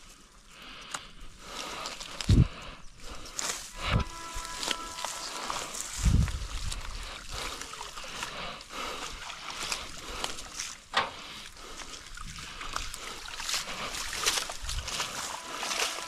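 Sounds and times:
water splashing and sloshing: 0:03.4 - 0:16.0.

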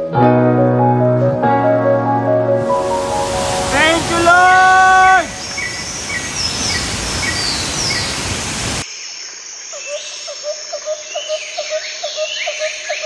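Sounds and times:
birds chirping: 0:02.6 - 0:08.8
waterfall roaring: 0:02.6 - 0:08.8
short low bird calls: 0:02.8 - 0:08.8.

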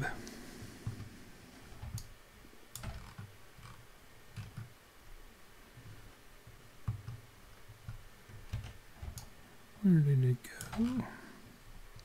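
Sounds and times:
computer mouse clicks: 0:01.8 - 0:02.1, 0:02.7 - 0:04.7.

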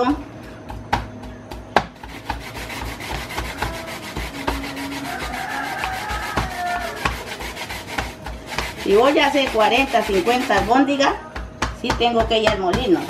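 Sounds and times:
stone scraping fish on cutting board: 0:02.0 - 0:10.8.

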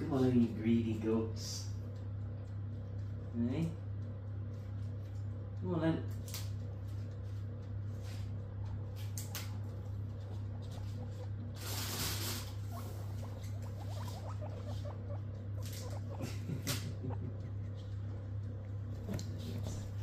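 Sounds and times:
guinea pigs munching lettuce: 0:00.0 - 0:20.0
steady low hum: 0:00.0 - 0:20.0
guinea pigs rustling in hay: 0:06.1 - 0:20.0.

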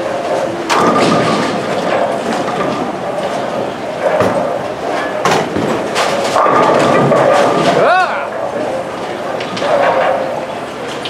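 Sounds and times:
bowling balls rolling on lanes: 0:00.0 - 0:11.0
pins crashing: 0:00.7 - 0:08.0.

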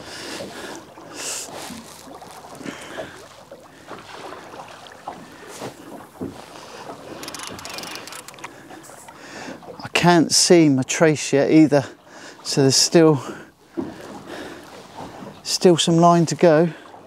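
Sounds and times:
water lapping against boat hull: 0:00.0 - 0:17.0.

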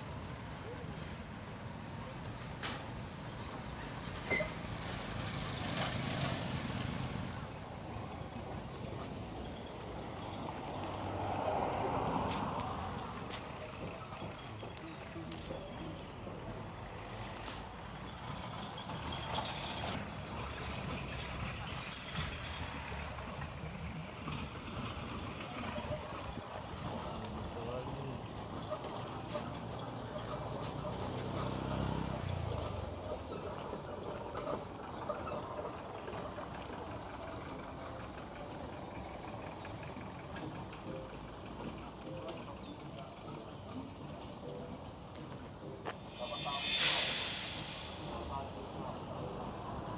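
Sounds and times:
faint street noises: 0:00.0 - 0:49.9
road traffic rumble: 0:00.0 - 0:49.9.

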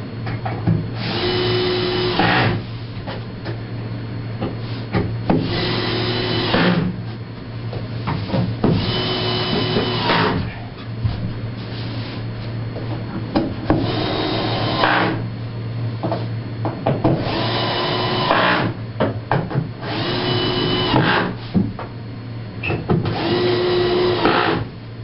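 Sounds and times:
power tool motor whirring: 0:19.8 - 0:21.3, 0:23.1 - 0:24.6.

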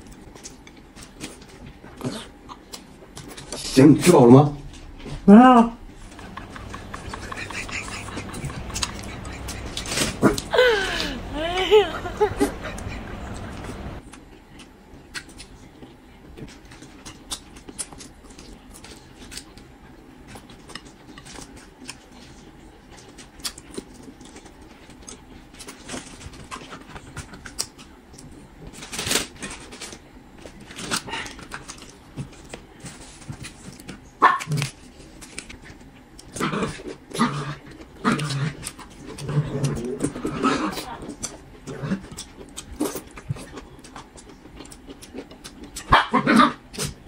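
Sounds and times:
crackly crunch: 0:05.8 - 0:11.3, 0:12.0 - 0:47.0
person chewing: 0:05.8 - 0:15.5, 0:34.6 - 0:45.9
chopsticks clicking on dishes: 0:06.0 - 0:10.5.

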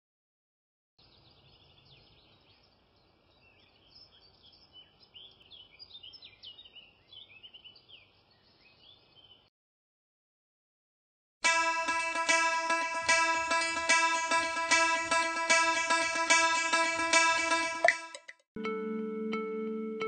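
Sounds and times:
birds chirping: 0:01.0 - 0:09.5.

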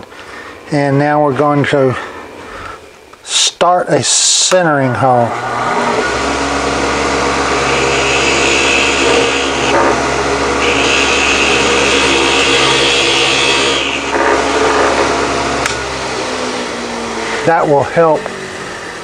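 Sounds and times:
lathe motor running: 0:05.2 - 0:19.0
bit cutting wood hiss: 0:07.7 - 0:09.8, 0:10.6 - 0:14.2.

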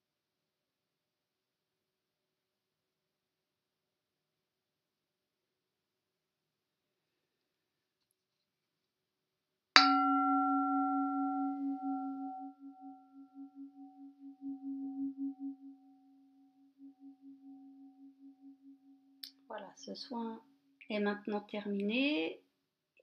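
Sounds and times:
brass singing bowl ringing: 0:09.8 - 0:19.2.

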